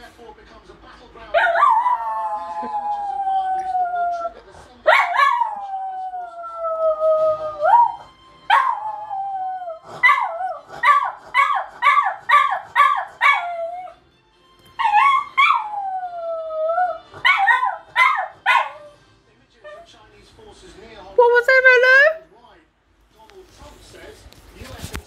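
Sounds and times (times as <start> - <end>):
dog yipping: 1.4 - 2.7, 4.9 - 5.7, 7.6 - 9.1, 10.0 - 14.0, 14.7 - 15.8, 16.8 - 19.0
dog howling: 1.4 - 14.0, 14.8 - 19.0.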